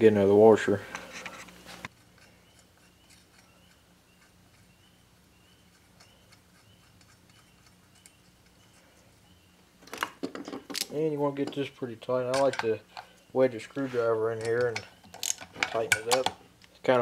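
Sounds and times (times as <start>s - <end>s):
faint high chirp: 2.3s - 9.6s
small metallic clicks: 14.4s - 16.8s.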